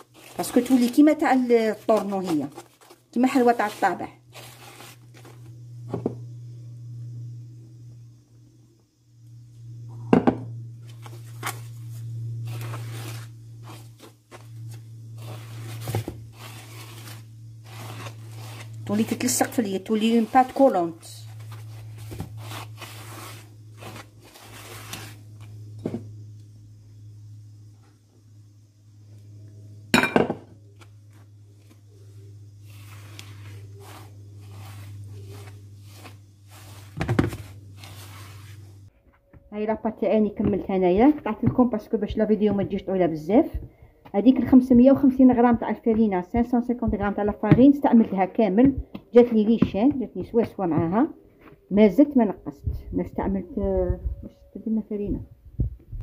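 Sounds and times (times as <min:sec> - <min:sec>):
dough squishing: 0:00.0 - 0:05.6, 0:10.9 - 0:25.6, 0:30.8 - 0:38.9, 0:39.6 - 0:51.9
steady low hum: 0:00.0 - 0:56.0
hand squishing batter: 0:32.6 - 0:38.8.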